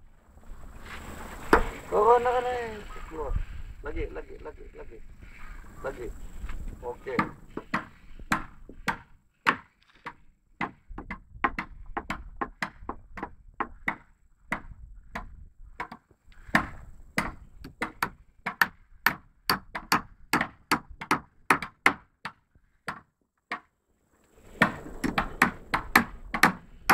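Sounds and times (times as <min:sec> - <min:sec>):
hammer knocking on wood: 0:07.1 - 0:23.7.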